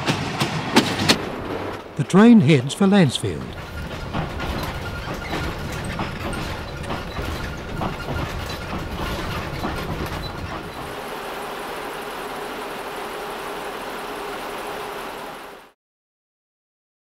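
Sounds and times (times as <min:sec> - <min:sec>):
rail motor engine rumbling: 0:00.0 - 0:15.7
wheels clicking over rail joints: 0:03.4 - 0:15.6.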